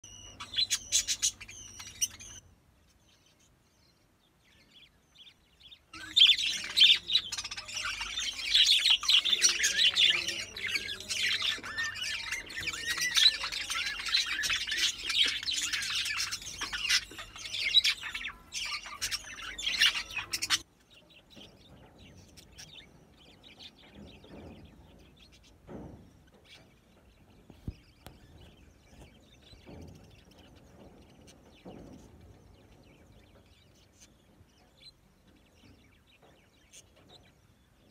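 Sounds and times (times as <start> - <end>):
budgerigars chirping and chattering: 0.0 - 37.9.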